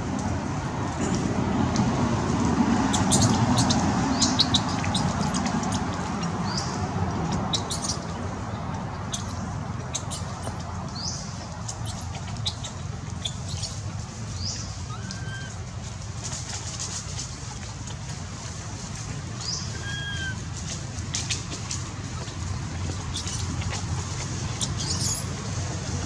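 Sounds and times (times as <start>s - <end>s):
steady background noise: 0.0s - 26.0s
small birds chirping: 2.9s - 15.6s, 22.1s - 23.7s, 24.5s - 25.3s.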